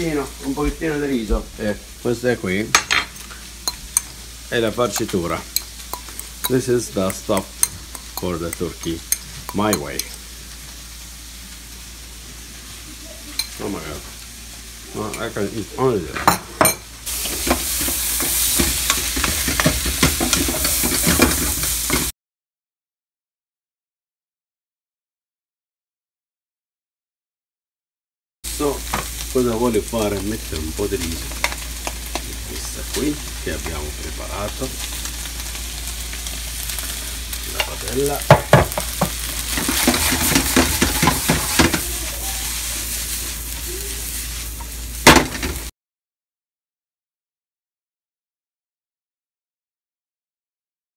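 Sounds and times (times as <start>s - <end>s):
food sizzling in a frying pan: 0.0s - 22.1s, 28.5s - 45.7s
wooden spoon scraping a pan: 17.1s - 22.1s, 36.8s - 44.8s.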